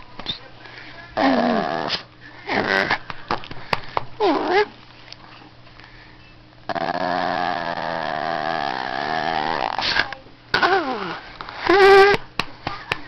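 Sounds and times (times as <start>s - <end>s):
dog growling: 1.2s - 3.0s, 6.7s - 9.8s, 10.6s - 12.2s.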